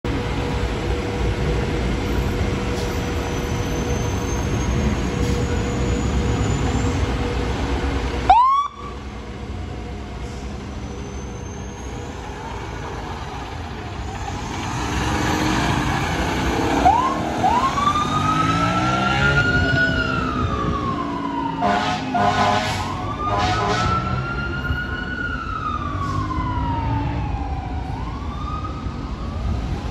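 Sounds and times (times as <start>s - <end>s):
siren wailing: 8.3s - 9.0s, 16.8s - 29.8s
short horn blasts: 21.6s - 24.0s.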